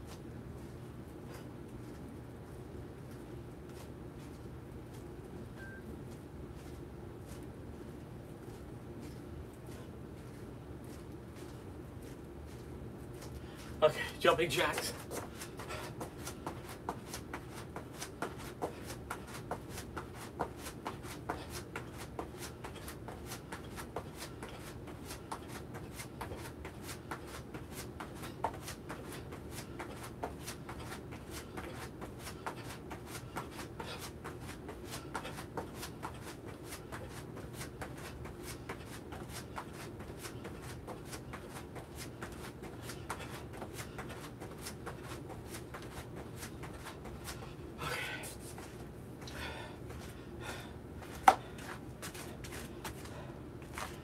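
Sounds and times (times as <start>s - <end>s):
feet landing on floor: 51.1s - 54.0s.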